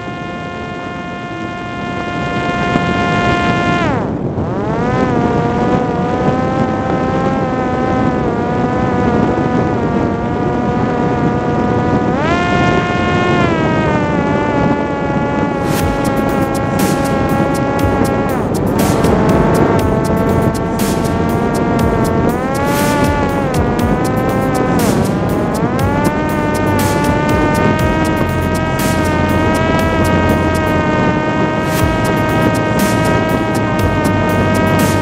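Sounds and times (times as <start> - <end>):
drone motor and propeller whining: 0.0 - 35.0
air rushing: 15.4 - 35.0.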